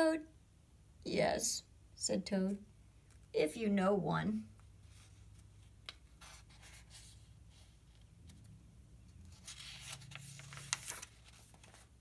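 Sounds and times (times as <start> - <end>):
book pages rustling: 4.8 - 12.0.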